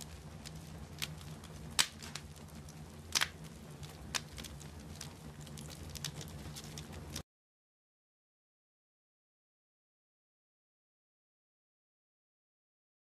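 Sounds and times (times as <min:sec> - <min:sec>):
low hum: 0:00.0 - 0:07.2
wood fire crackling: 0:00.0 - 0:07.2.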